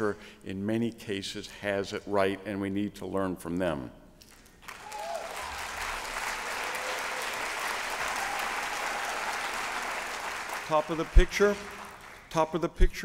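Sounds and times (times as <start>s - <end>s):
audience applauding: 4.6s - 12.3s.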